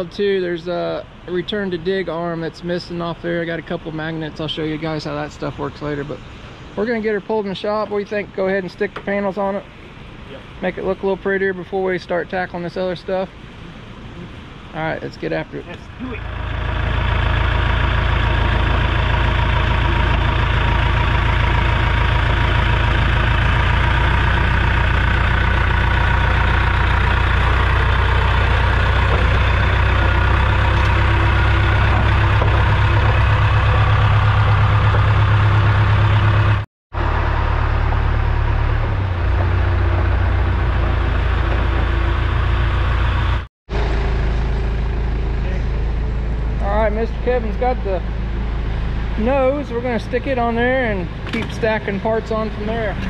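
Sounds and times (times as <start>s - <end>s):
heavy machine engine running: 15.7s - 53.0s.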